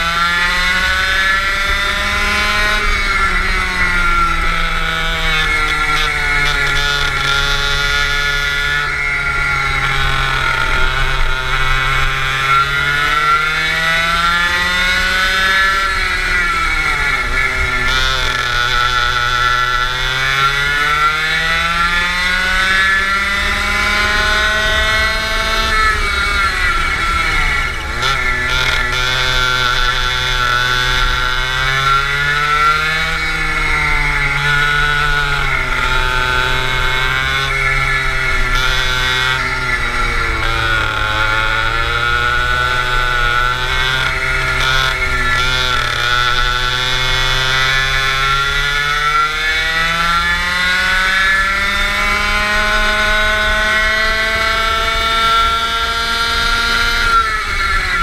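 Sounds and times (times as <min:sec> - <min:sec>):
go-kart engine revving: 0:00.0 - 0:58.0.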